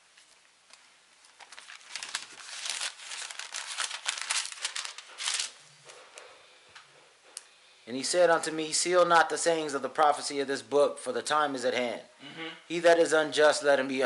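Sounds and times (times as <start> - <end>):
paper pages rustling: 0.1 - 6.3.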